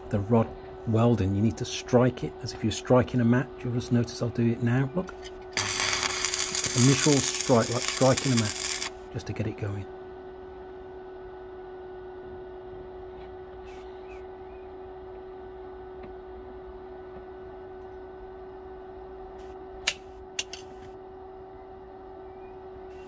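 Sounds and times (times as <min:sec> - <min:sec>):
welding set humming: 0:00.0 - 0:11.0.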